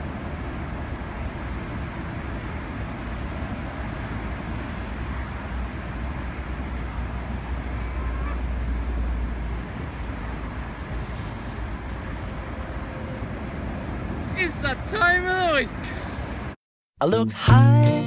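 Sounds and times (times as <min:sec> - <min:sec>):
wind noise on microphone: 0:00.0 - 0:14.4
shopping trolley rattling over grass: 0:07.4 - 0:13.4.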